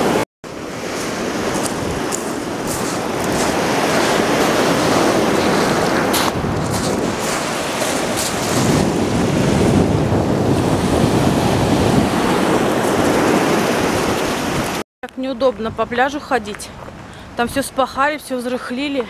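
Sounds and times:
surf washing over pebbles: 0.0 - 14.8
wind buffeting microphone: 0.8 - 18.0.

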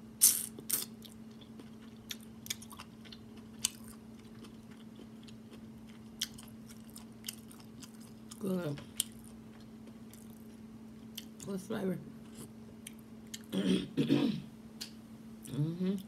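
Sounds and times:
steady low hum: 0.0 - 16.0
person chewing: 0.2 - 11.4, 12.2 - 13.5.

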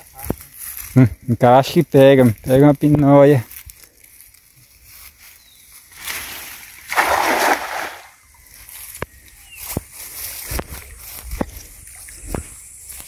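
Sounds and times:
net splashing onto water: 5.9 - 8.2.

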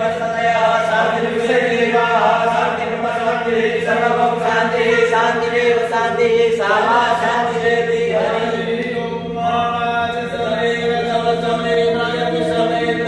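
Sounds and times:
steady low tone: 0.0 - 13.0
voices chanting together: 0.0 - 13.0.

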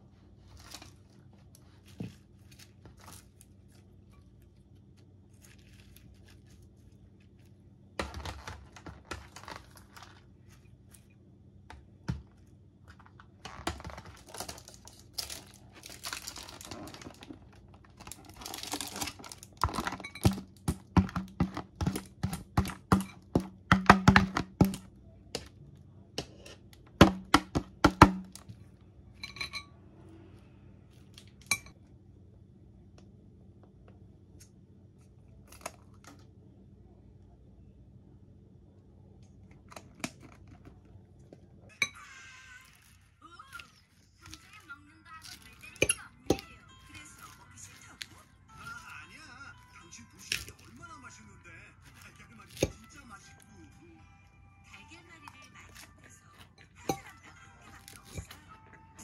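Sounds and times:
plastic packaging crinkling: 0.4 - 11.2, 12.3 - 23.0, 42.5 - 53.5.

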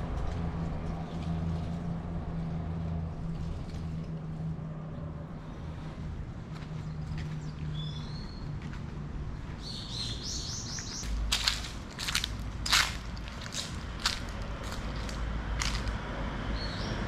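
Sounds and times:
footsteps on dry leaves: 9.4 - 16.1
small bird chirping: 9.6 - 11.3.

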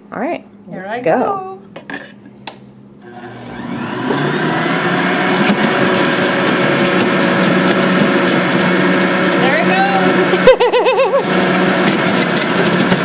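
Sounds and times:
juicer motor whine: 3.0 - 13.0.

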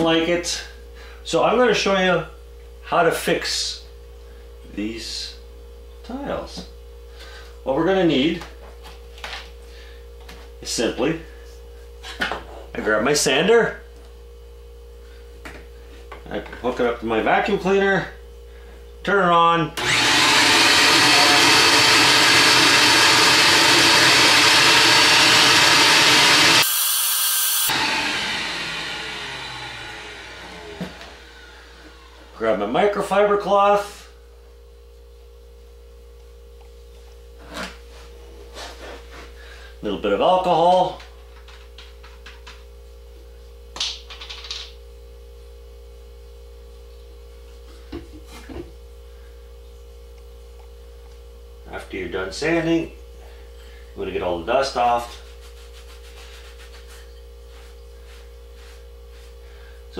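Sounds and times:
electrical hum: 0.0 - 59.9
orbital sander whirring: 19.8 - 32.7
vacuum cleaner running: 19.8 - 34.0, 56.1 - 59.9
cloth wiping rustle: 55.2 - 59.4.

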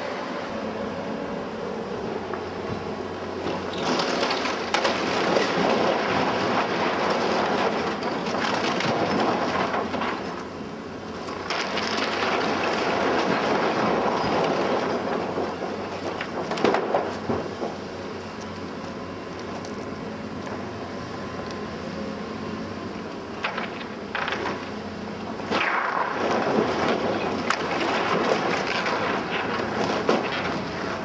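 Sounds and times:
excavator engine humming: 0.0 - 31.0
timber crunching and cracking: 3.4 - 20.6, 23.4 - 31.0
falling debris: 3.5 - 10.5, 11.2 - 17.8, 23.4 - 24.7, 25.3 - 31.0.

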